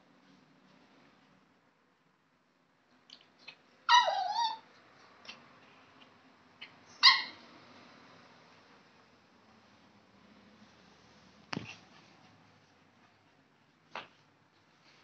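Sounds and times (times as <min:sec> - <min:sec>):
puppy yipping: 0:03.9 - 0:04.6, 0:06.6 - 0:07.4.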